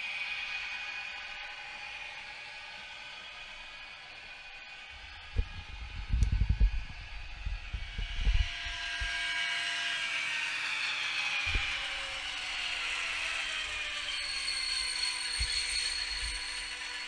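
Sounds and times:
faint falling whines: 0.0s - 17.0s
model locomotive diesel engine sound: 6.8s - 17.0s.

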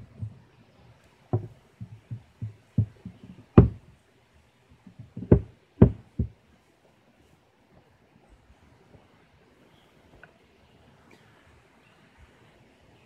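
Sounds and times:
wooden knocks on box trap: 1.3s - 3.8s, 4.9s - 6.4s.

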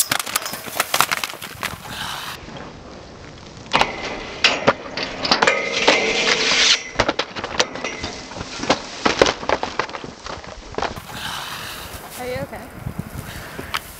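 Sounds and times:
skis clacking on metal handrail: 3.7s - 10.0s.

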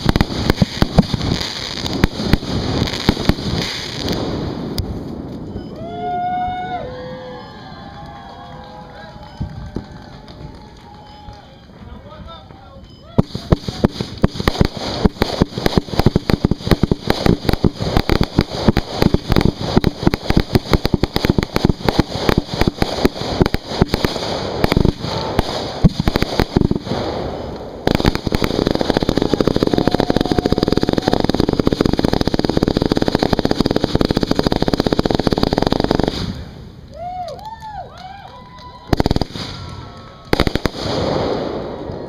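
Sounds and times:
fireworks launching and bursting: 0.0s - 5.7s, 13.2s - 37.2s, 38.5s - 42.0s
fireworks crackle: 0.0s - 6.6s, 7.3s - 42.0s.

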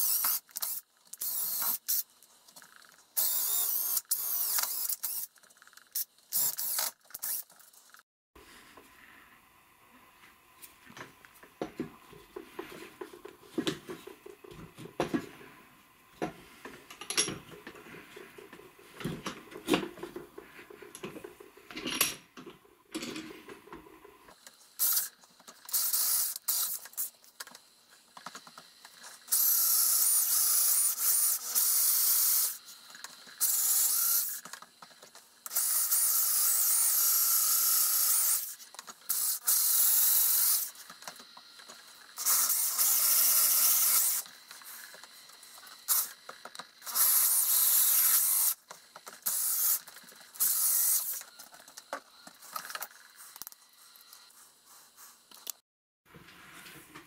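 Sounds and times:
electric drill boring into wood: 0.0s - 1.9s, 3.2s - 5.3s, 6.4s - 7.4s, 25.7s - 26.8s, 29.3s - 32.6s, 33.4s - 34.4s, 35.5s - 40.7s, 42.2s - 44.4s, 46.8s - 48.6s, 49.2s - 49.8s, 50.4s - 51.2s.

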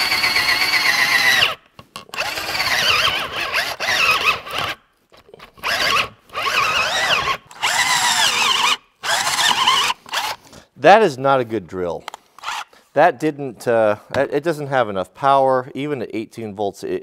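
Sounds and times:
cordless drill boring into wood: 0.0s - 1.6s, 2.2s - 4.8s, 5.6s - 10.4s, 12.4s - 12.6s
drill gearbox grinding: 0.0s - 4.8s, 5.4s - 10.4s, 12.4s - 12.7s.

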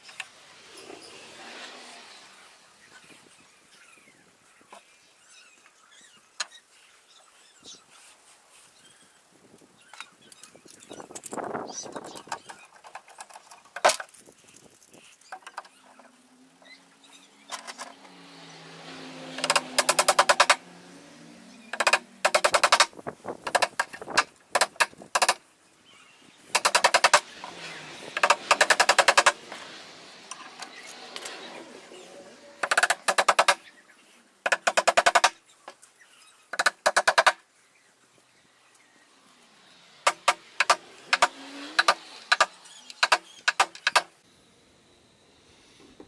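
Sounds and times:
impact driver hammering: 19.4s - 20.6s.

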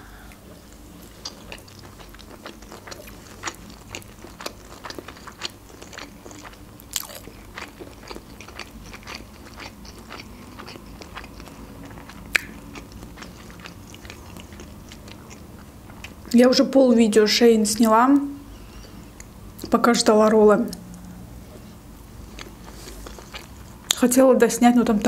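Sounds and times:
chewing with wet mouth clicks: 1.0s - 16.4s, 22.3s - 24.0s.

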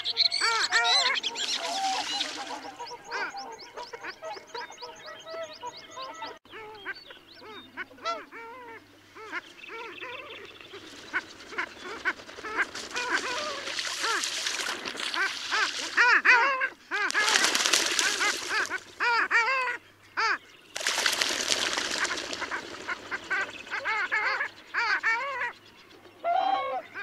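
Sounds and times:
ducks yodelling calls: 0.0s - 10.4s, 26.2s - 27.0s.

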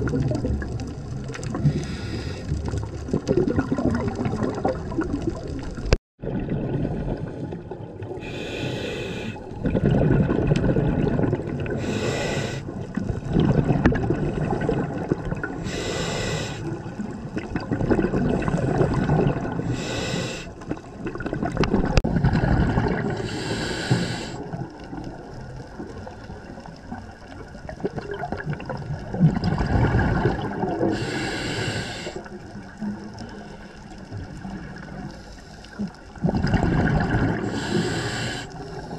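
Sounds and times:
exhaled bubbles rushing underwater: 0.0s - 38.9s
low rumble of water: 0.0s - 38.9s.

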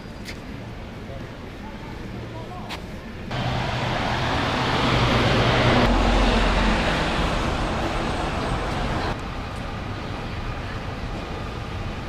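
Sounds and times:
road traffic noise: 0.0s - 12.0s
vehicle engine humming: 3.3s - 12.0s.

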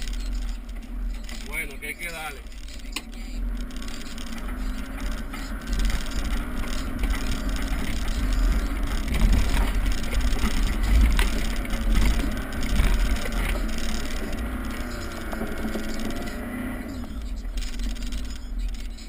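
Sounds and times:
off-road vehicle engine: 0.0s - 19.0s
knocks and rattles: 3.6s - 16.4s.

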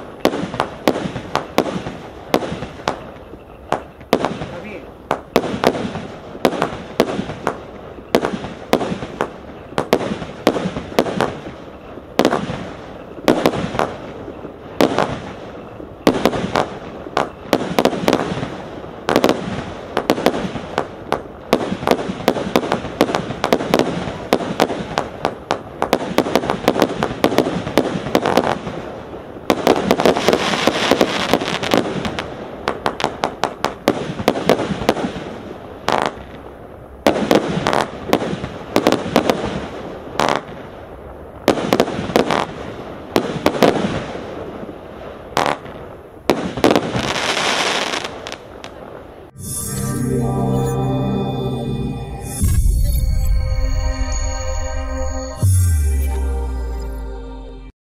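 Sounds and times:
firework cake bangs: 0.0s - 11.6s.

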